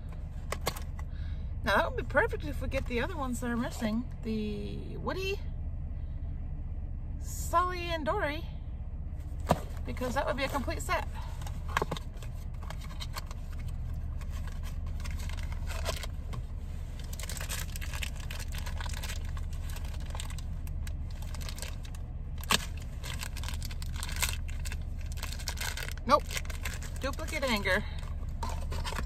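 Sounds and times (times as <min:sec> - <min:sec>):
steady low hum: 0:00.0 - 0:29.0
plastic wrapping crinkling: 0:17.0 - 0:27.6.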